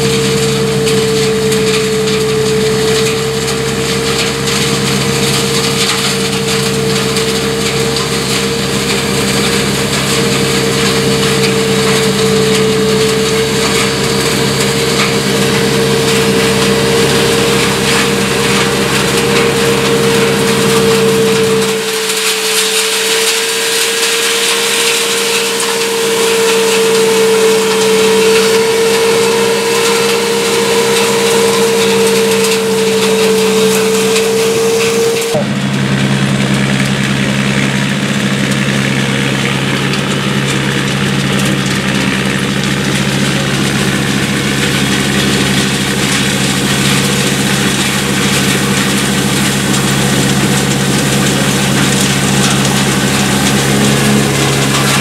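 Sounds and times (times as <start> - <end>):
deep low hum: 0.0 - 22.3
harvester engine whining: 0.0 - 55.0.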